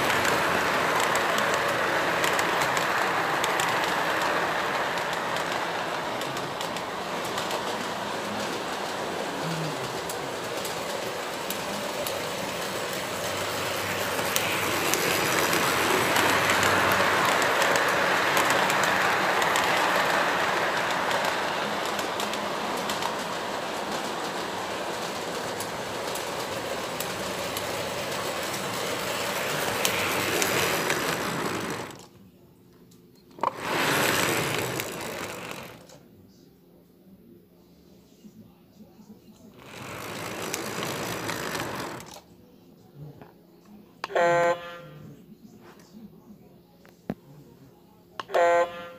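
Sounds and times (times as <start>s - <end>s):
model train rolling clatter: 0.0s - 32.2s, 33.4s - 36.0s, 39.3s - 42.3s.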